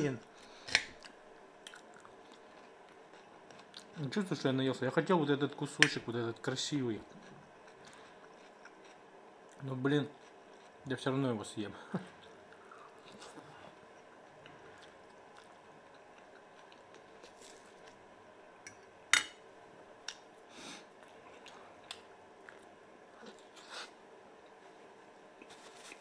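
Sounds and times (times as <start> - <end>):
man chewing food: 0.3 - 4.1, 7.0 - 10.9, 12.1 - 19.0, 19.8 - 26.0.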